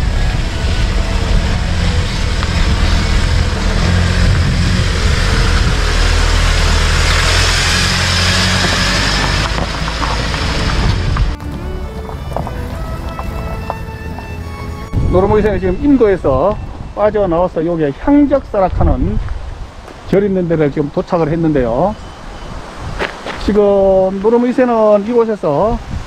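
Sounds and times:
diesel engine running: 0.0s - 17.0s
tyres crunching on gravel: 0.8s - 15.5s, 17.8s - 20.4s, 23.0s - 24.7s.

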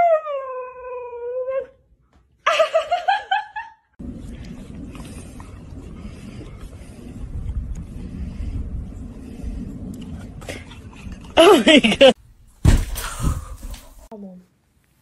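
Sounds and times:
steady low rumbling: 4.0s - 14.1s.

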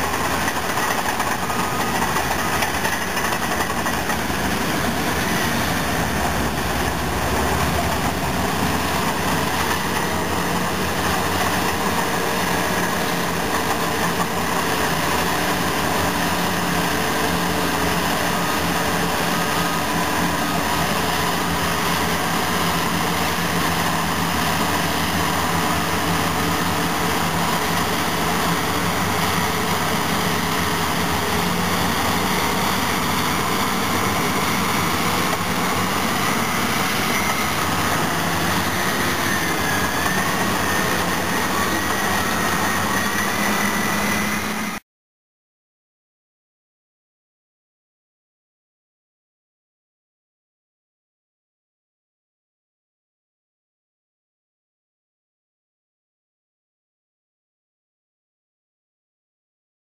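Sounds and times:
heavy diesel engines droning: 0.0s - 44.8s.

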